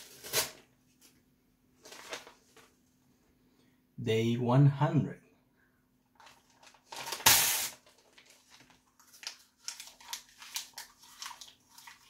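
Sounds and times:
paper ripping: 6.2s - 12.0s
paper crinkling while chewed: 7.8s - 12.0s.

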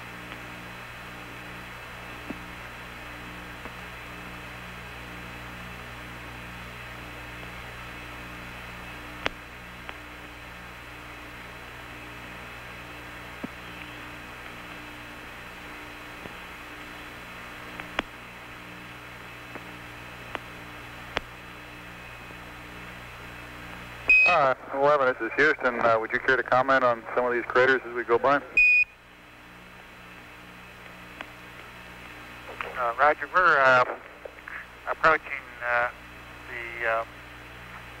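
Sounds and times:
radio static: 24.1s - 28.6s, 32.3s - 38.0s.

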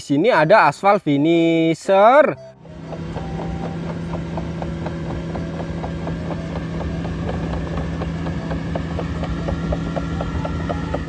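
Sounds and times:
diesel engine droning: 2.2s - 11.0s
metallic clicks of tracks: 2.6s - 11.0s.

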